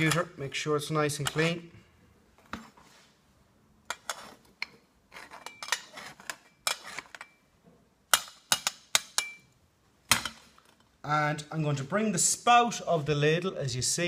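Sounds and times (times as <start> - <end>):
trowel scraping metal ladle: 3.9 - 7.4.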